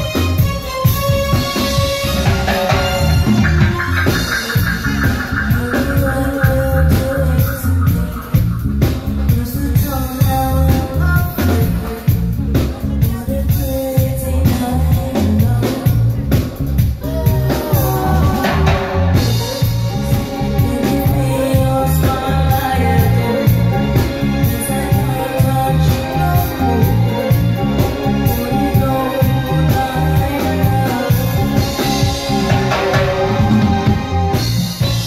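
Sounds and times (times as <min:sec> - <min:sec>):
live reggae band: 0:00.0 - 0:35.0
woman singing: 0:05.2 - 0:34.1.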